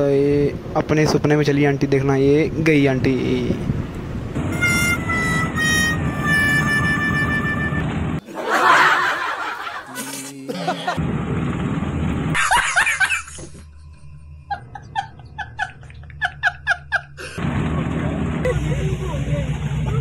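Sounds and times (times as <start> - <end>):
held musical tone: 4.4 - 8.2
rapid laughing syllables: 8.2 - 11.0.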